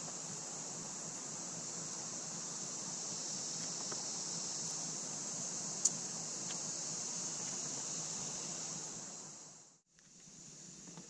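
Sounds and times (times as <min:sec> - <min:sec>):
high-pitched insect chorus: 0:00.0 - 0:11.0
faint ticks: 0:05.8 - 0:06.7.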